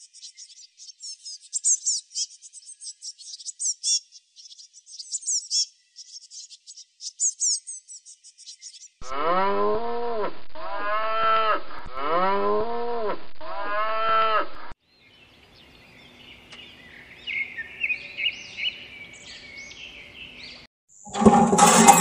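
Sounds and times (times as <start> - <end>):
faint birds chirping: 0.0 - 9.0, 14.9 - 20.7
cow mooing: 9.0 - 14.5.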